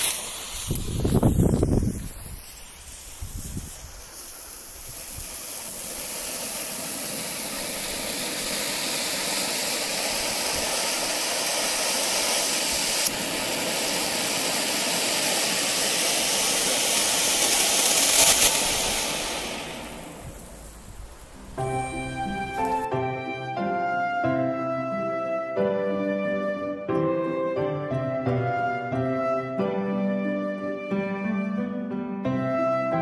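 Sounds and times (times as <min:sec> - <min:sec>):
firework fountain hissing sparks: 0:00.0 - 0:23.6.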